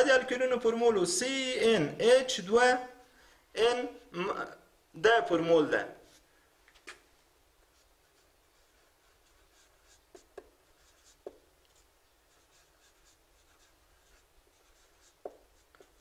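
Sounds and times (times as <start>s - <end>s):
marker scratching on whiteboard: 7.6s - 16.0s
marker tapping on whiteboard: 9.8s - 11.8s, 14.7s - 16.0s.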